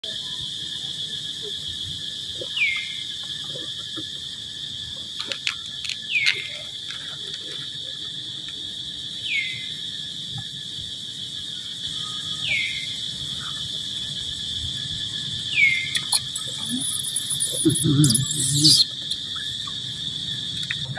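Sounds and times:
high-pitched insect drone: 0.0 - 20.9.

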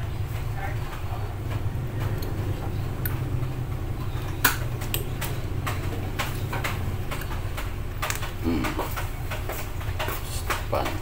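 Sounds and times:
steady low hum: 0.0 - 11.0
wire connectors clicking: 4.2 - 11.0.

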